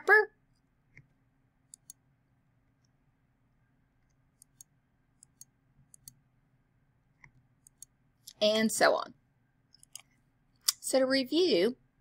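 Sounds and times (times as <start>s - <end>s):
mouse and keyboard clicks: 1.7s - 2.0s, 4.0s - 6.2s, 7.2s - 7.9s, 9.7s - 10.8s.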